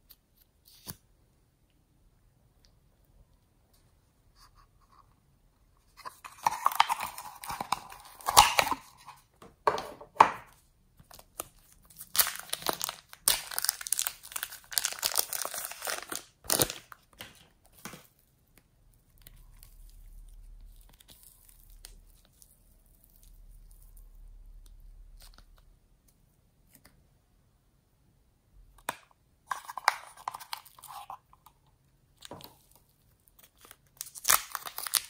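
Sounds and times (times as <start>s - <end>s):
plastic wrapping crinkling and tearing: 6.2s - 9.1s, 11.0s - 18.3s, 32.2s - 35.0s.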